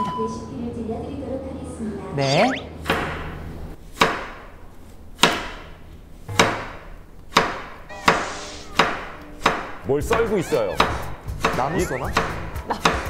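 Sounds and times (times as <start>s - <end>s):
knife chopping on cutting board: 3.9s - 4.5s, 5.2s - 7.8s, 8.8s - 13.0s.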